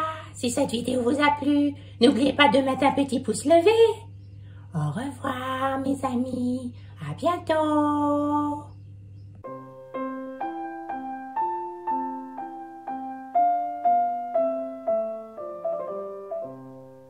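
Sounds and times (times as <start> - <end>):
piano-like keyboard tune: 9.4 - 17.0.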